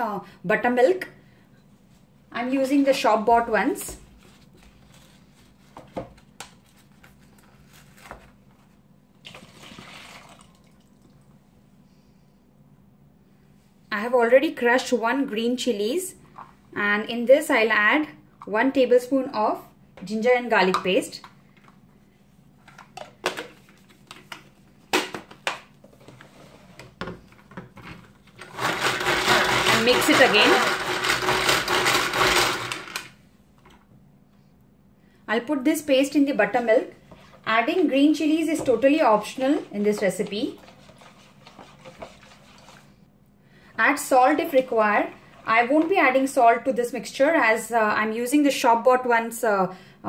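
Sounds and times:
liquid pouring into bowl: 0:09.2 - 0:11.4, 0:40.6 - 0:43.0.

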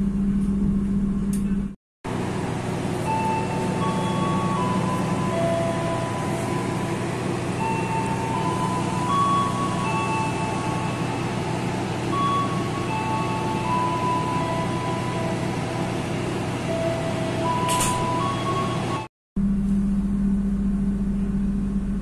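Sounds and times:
train running rumble: 0:00.0 - 0:19.1
slow tune of held notes: 0:02.6 - 0:19.0.

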